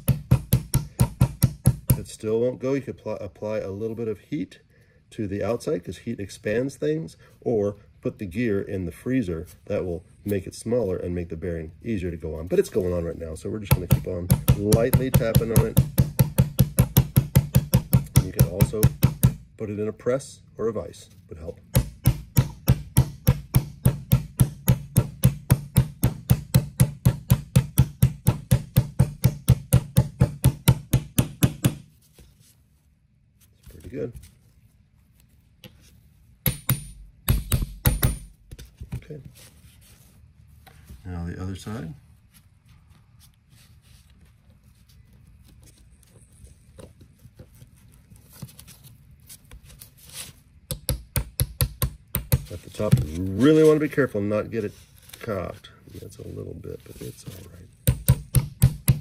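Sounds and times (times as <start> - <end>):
hammer tapping metal: 0.0 - 2.1, 13.7 - 19.4, 21.7 - 31.8, 36.4 - 38.4, 57.8 - 59.0.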